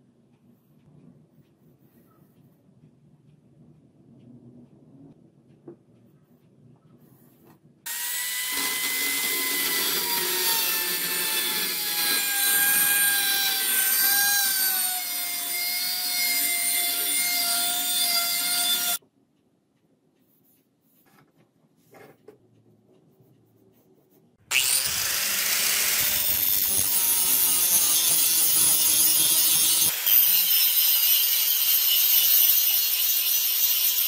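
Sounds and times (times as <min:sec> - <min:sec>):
rotary tool grinding steel: 0:07.9 - 0:19.0, 0:24.5 - 0:34.0.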